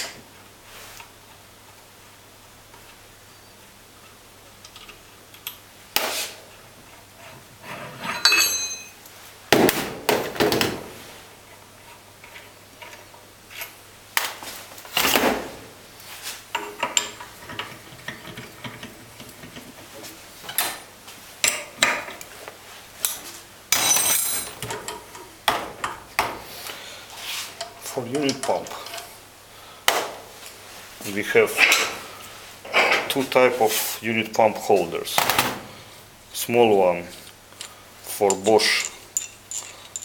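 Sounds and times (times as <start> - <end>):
steel parts clanking on workbench: 7.8 - 9.0, 23.1 - 25.1
short metallic ring: 8.1 - 9.0.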